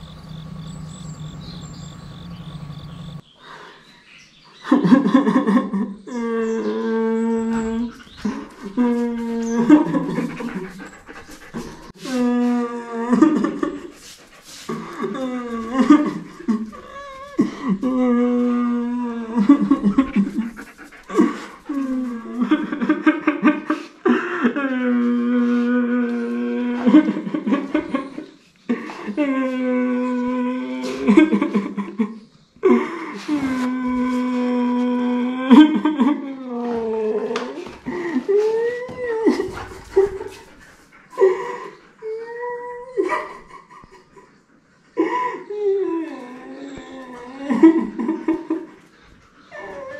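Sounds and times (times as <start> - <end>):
man fake sobbing: 4.9 - 14.0, 14.6 - 40.4.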